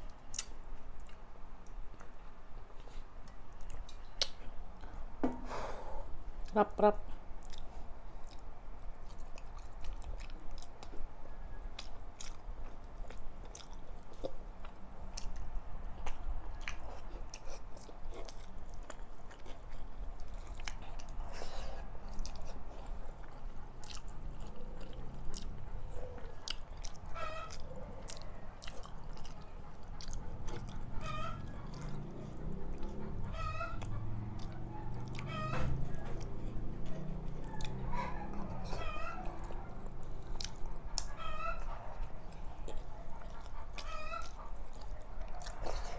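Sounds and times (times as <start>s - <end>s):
chewing with wet clicks: 0.0s - 5.0s, 6.4s - 45.9s
animal calls: 25.8s - 36.4s, 37.4s - 41.9s, 42.6s - 45.9s.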